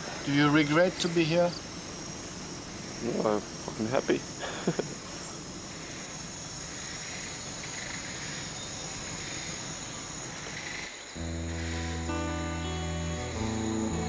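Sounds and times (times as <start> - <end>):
crickets and insects buzzing: 0.0 - 14.0
music with held notes: 11.2 - 14.0.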